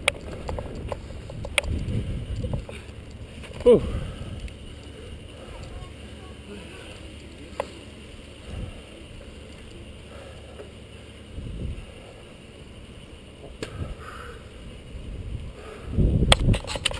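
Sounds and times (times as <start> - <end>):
bike tyres rumbling on road: 0.0 - 16.9
wind on microphone: 0.3 - 2.9, 11.3 - 12.0, 14.9 - 16.9.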